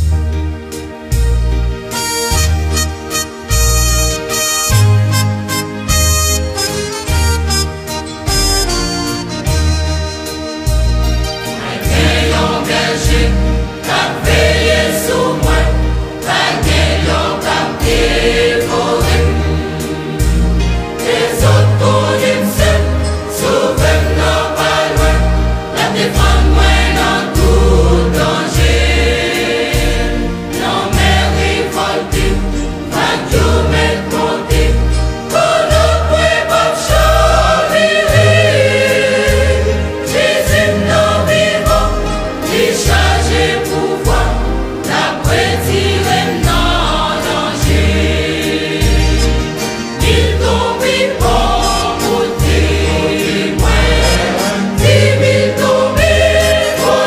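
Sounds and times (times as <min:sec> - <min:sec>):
choir singing: 0:11.4 - 0:57.0.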